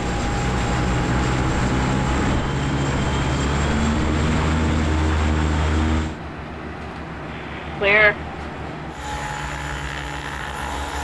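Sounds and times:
aircraft propeller drone: 0.0 - 11.0
faint high whine: 7.3 - 11.0.

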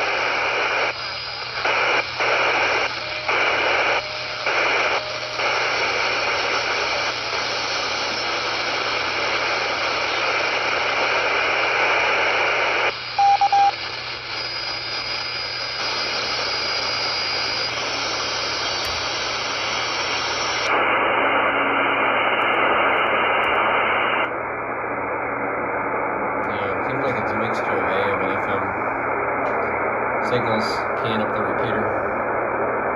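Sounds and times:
radio receiver hiss: 0.0 - 32.9
short beeps: 13.2 - 13.8.

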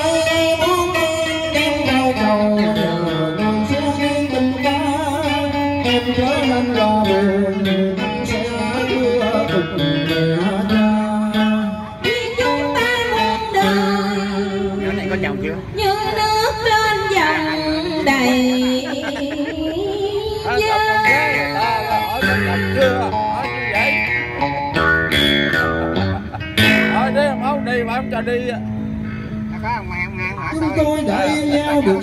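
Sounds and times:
person singing through a pa: 0.0 - 14.8
plucked guitar: 0.0 - 32.0.

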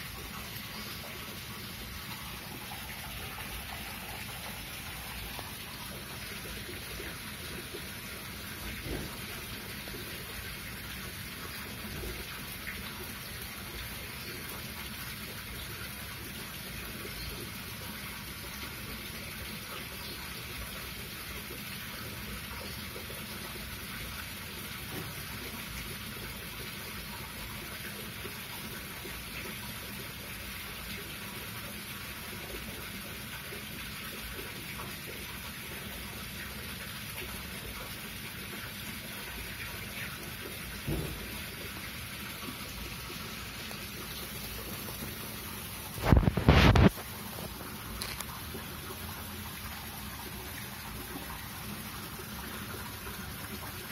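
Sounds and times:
rain hissing: 40.8 - 51.0.

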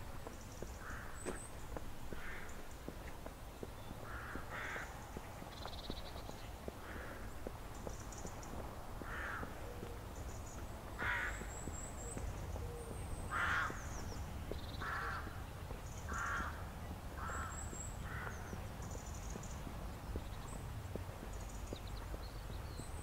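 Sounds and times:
small birds chirping: 0.0 - 23.0
crows cawing: 0.8 - 1.4, 2.1 - 2.6, 4.0 - 5.0, 6.8 - 7.4, 9.0 - 10.0, 10.9 - 11.8, 12.6 - 14.1, 14.7 - 15.4, 16.1 - 16.6, 17.2 - 18.6.

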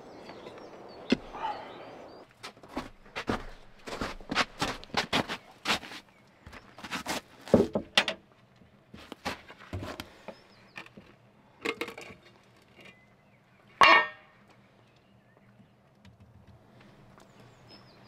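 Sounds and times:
metal tin and tools knocking: 13.8 - 14.2.

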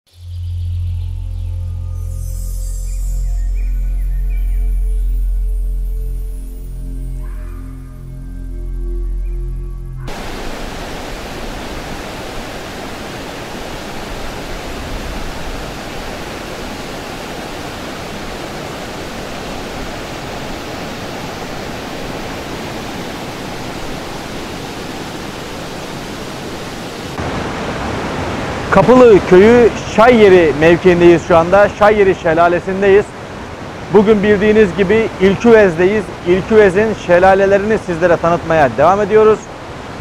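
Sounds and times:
waterfall rushing: 10.1 - 40.0.

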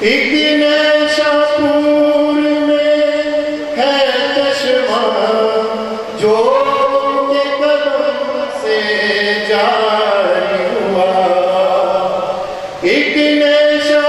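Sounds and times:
man singing into a microphone: 0.0 - 14.0.

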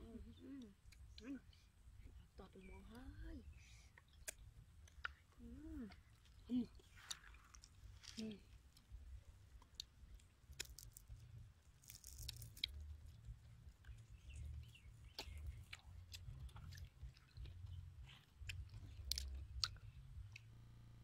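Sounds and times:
small clicks of fingers picking food: 3.9 - 20.5
chewing: 3.9 - 20.6.

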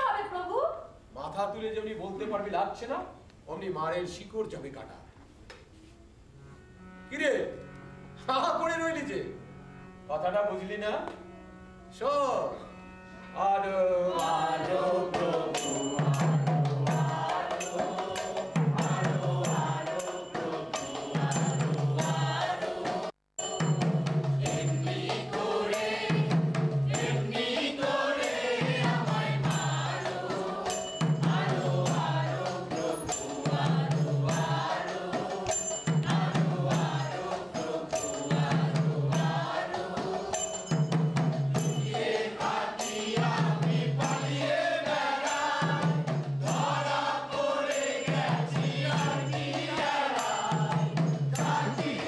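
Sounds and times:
chorus of voices chanting: 14.1 - 23.2, 24.4 - 40.7, 41.6 - 52.0
steady percussion: 14.1 - 52.0
sharp ringing strikes: 23.4 - 24.9, 40.3 - 42.0.

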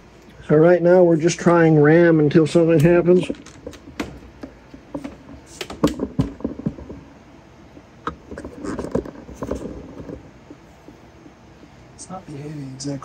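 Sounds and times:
hands tapping a laptop: 2.8 - 7.1.

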